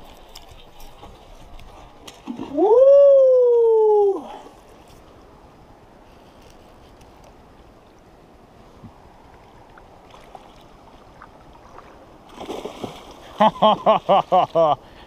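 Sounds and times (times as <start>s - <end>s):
river water and wind hiss: 0.0s - 15.0s
person whooping: 2.5s - 4.4s
fish thrashing and splashing: 11.7s - 13.4s.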